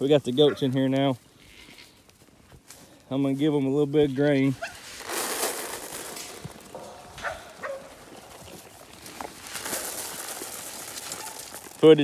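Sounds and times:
feed pellets rattling in pan: 4.9 - 8.4, 9.2 - 12.0.

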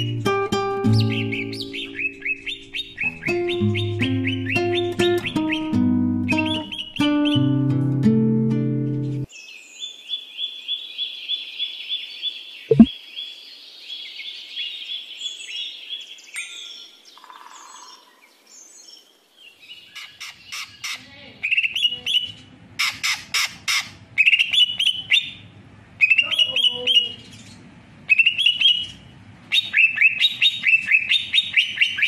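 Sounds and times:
songbird chirping: 0.0 - 7.5, 9.0 - 20.8.

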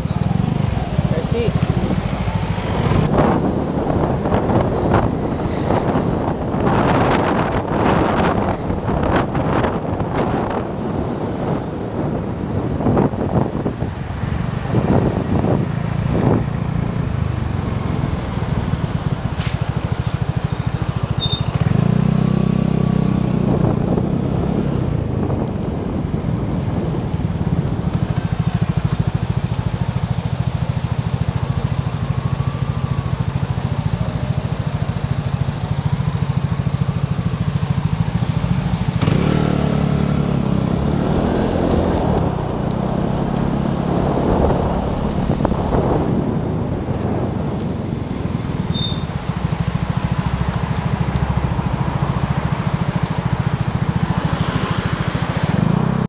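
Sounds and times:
scooter engine running: 15.0 - 56.0.

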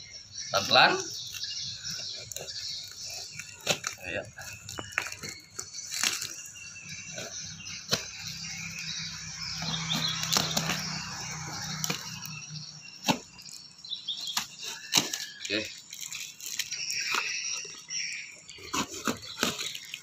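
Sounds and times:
tape ripping: 4.6 - 6.5, 14.2 - 17.7, 18.6 - 20.0
cardboard flaps tearing: 18.6 - 20.0
knife cutting tape and cardboard: 18.6 - 20.0.

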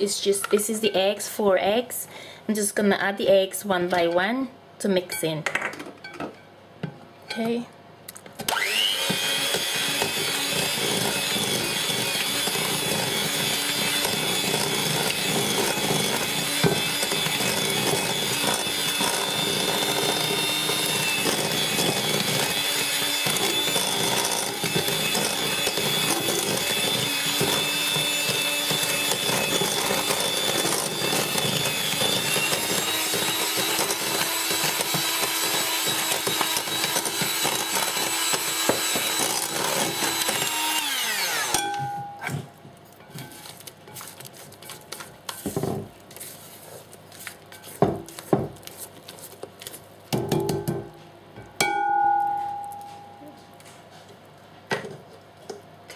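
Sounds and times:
electric hand mixer motor: 8.5 - 42.0.

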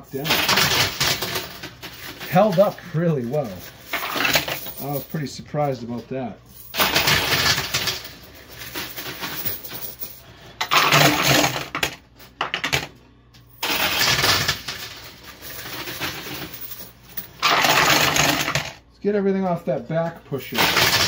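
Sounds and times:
coins and chips clattering: 0.0 - 18.8, 20.3 - 21.0.

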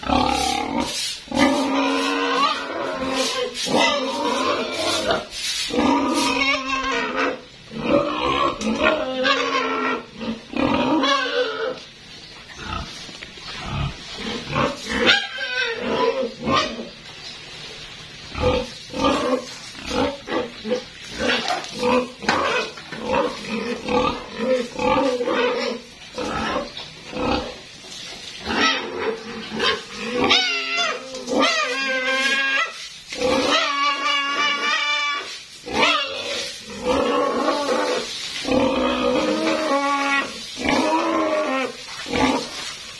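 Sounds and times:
pigs squealing and grunting: 0.0 - 11.9, 12.5 - 17.0, 18.3 - 27.7, 28.4 - 42.8.

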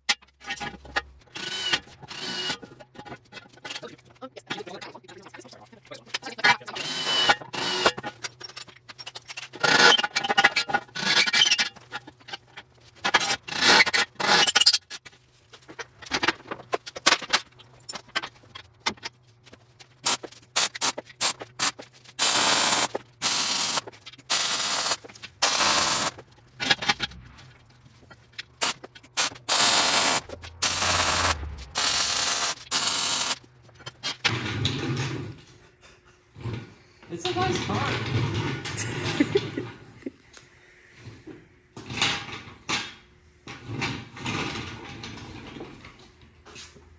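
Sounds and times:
cordless drill on steel: 1.4 - 2.6, 6.8 - 7.9, 22.2 - 26.1, 29.2 - 33.4.

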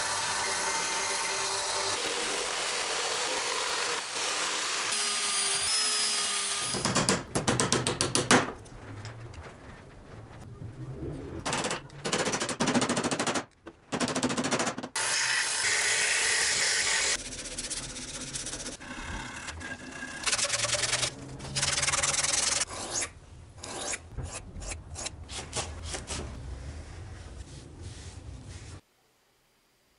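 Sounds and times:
sandpaper scratching wood: 17.2 - 18.8.

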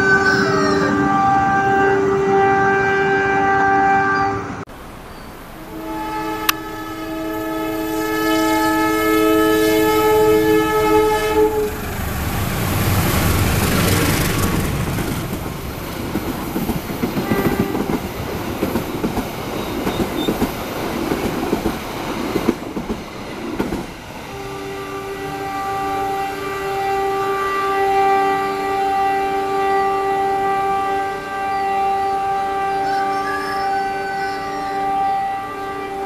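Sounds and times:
train horn chord: 0.0 - 4.6, 5.6 - 11.9, 17.2 - 18.0, 24.2 - 36.0
train rumbling past: 0.0 - 36.0
wheels clacking over rail joints: 11.7 - 24.3.

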